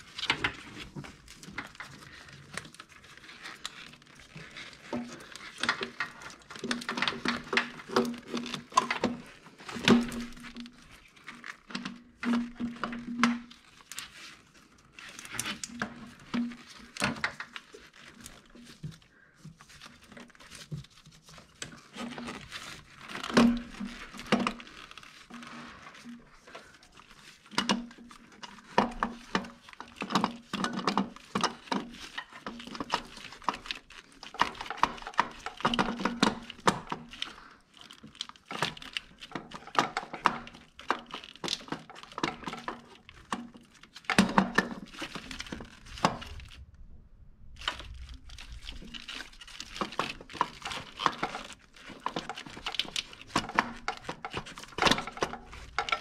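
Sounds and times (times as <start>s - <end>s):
small clicks and knocks: 0.0s - 46.9s, 47.5s - 56.0s
rustling of hoses and wiring: 0.0s - 56.0s.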